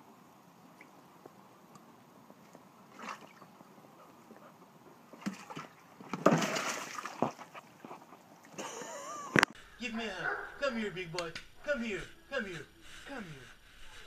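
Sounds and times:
water sloshing in plastic tub: 2.9s - 3.5s, 5.1s - 8.6s
tub knocking: 5.2s - 7.4s.

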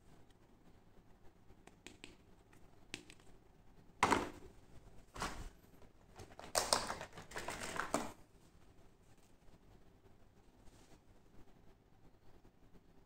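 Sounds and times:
plastic packaging crinkling: 6.1s - 8.2s.

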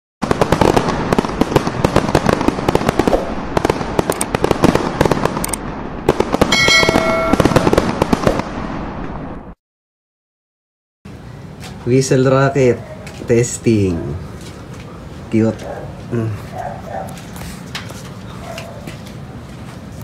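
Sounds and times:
fireworks bangs and crackles: 0.2s - 9.6s
brief ringing tone: 6.5s - 7.6s.

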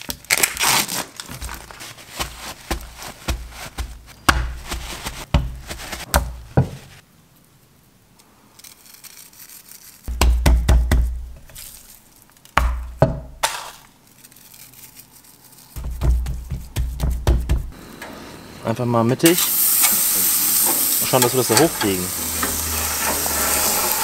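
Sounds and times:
paper rustling: 0.0s - 7.0s, 8.6s - 10.2s, 11.4s - 12.6s, 13.4s - 17.7s.

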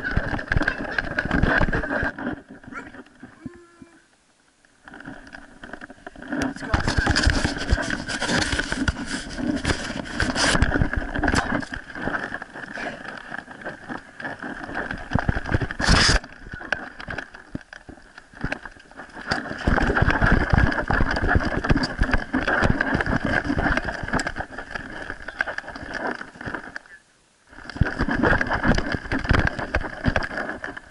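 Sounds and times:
camera handling noise: 15.1s - 17.7s.

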